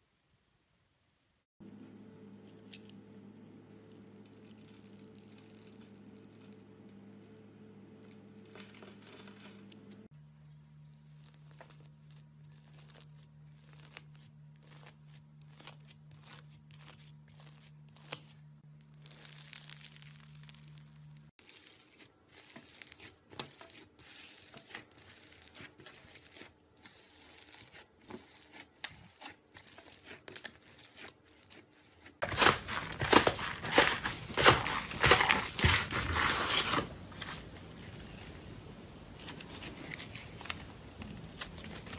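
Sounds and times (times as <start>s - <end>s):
faint steady hum: 1.2s - 21.4s
slime crackling and tearing: 3.7s - 8.6s, 11.1s - 36.6s.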